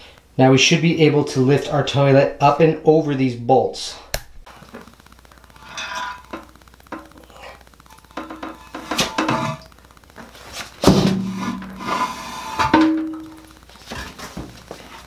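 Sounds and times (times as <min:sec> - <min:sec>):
porcelain toilet scraping on tile: 0:07.3 - 0:09.7, 0:10.9 - 0:13.2.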